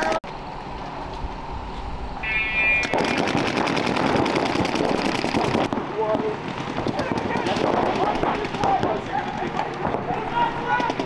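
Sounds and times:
brief high tone: 2.2 - 2.9.

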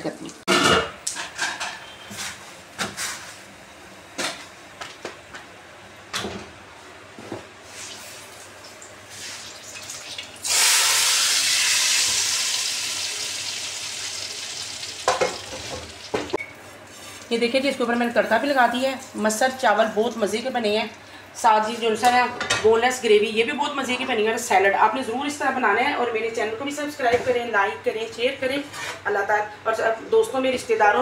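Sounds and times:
hot oil hissing and sizzling: 9.1 - 16.2.

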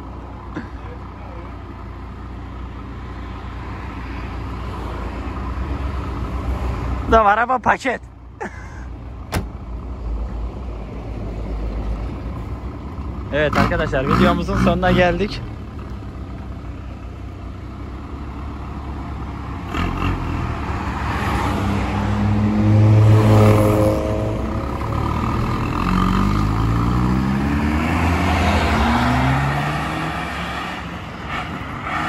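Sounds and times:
car engine revving past: 19.7 - 32.0.

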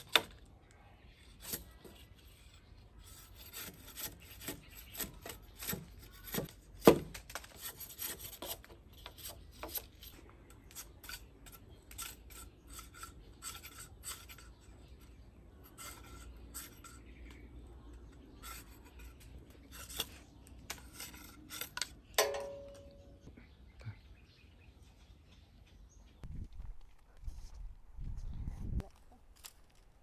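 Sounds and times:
machete scraping cane: 1.2 - 22.6.

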